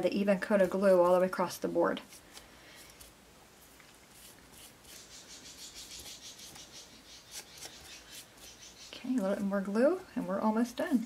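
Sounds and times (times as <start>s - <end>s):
foam brush dabbing glue on paper: 0.2s - 2.3s, 3.0s - 6.6s
fingertips pressing paper: 7.3s - 8.5s.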